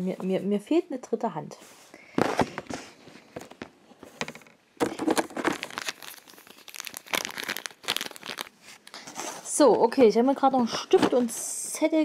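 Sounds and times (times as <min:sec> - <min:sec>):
plastic bag crinkling: 0:04.8 - 0:09.6.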